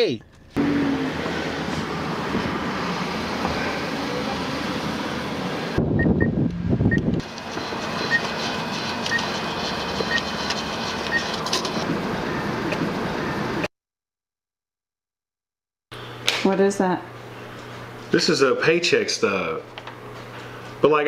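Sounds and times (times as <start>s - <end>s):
car engine running: 0.2s - 13.6s
atm beeping: 6.0s - 13.5s.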